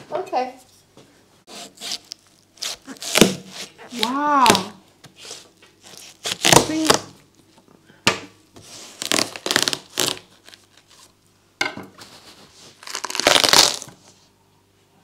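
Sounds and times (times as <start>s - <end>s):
knife cutting through watermelon: 1.5s - 6.9s
melon splitting open: 1.6s - 4.8s, 5.8s - 7.2s, 8.8s - 10.7s, 12.8s - 14.0s.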